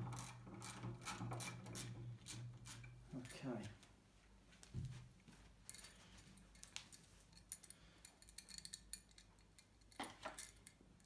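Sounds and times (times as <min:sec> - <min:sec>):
metallic clicks and rattles: 0:05.7 - 0:11.0.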